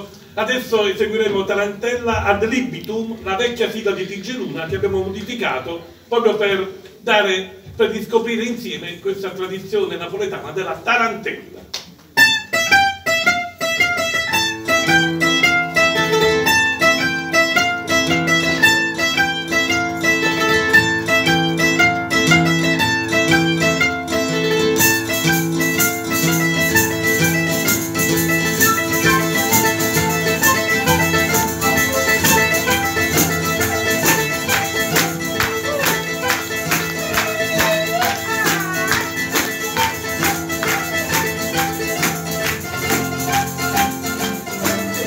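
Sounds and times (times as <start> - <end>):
percussion rhythm: 12.1 - 45.0
plucked mandolin and guitar: 12.2 - 45.0.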